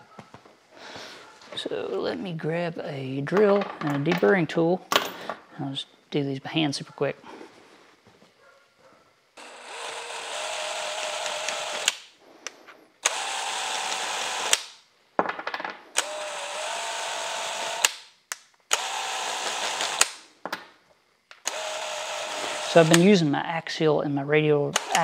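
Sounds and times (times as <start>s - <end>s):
cordless drill whining: 9.4s - 12.1s, 13.0s - 14.7s, 16.0s - 17.9s, 18.7s - 20.1s, 21.4s - 23.2s, 24.8s - 25.0s
sharp clicks: 11.0s - 13.2s, 13.9s - 14.8s, 24.8s - 25.0s.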